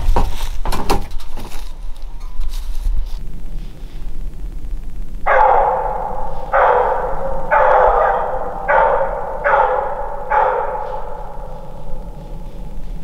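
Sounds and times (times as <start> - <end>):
hound baying: 5.2 - 13.0.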